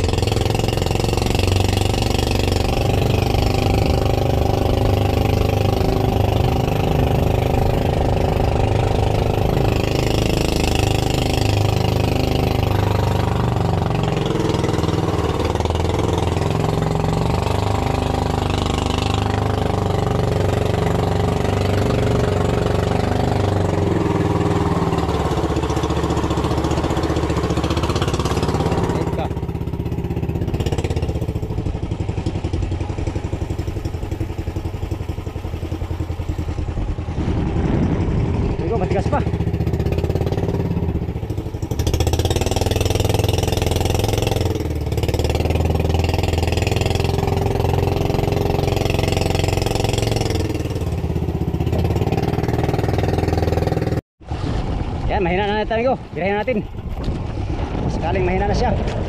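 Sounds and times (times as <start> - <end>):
boat engine running: 0.0 - 59.0.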